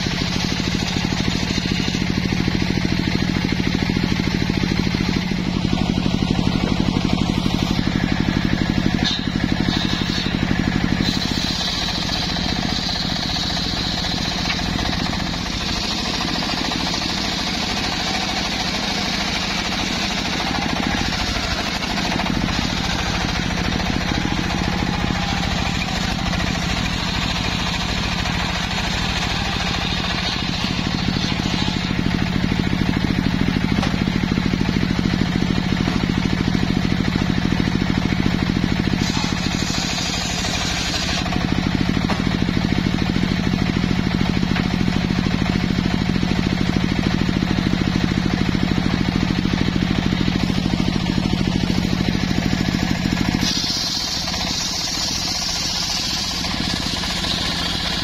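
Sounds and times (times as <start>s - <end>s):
sawmill blade ripping log: 6.9s - 32.2s, 38.9s - 41.3s, 50.4s - 58.0s.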